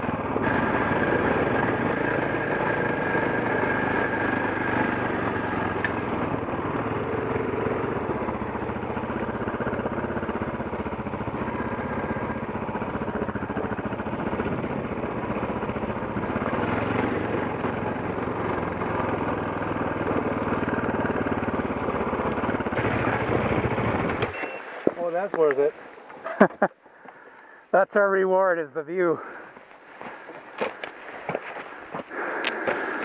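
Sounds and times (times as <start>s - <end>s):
motorcycle engine running: 0.0s - 26.4s, 30.1s - 33.0s.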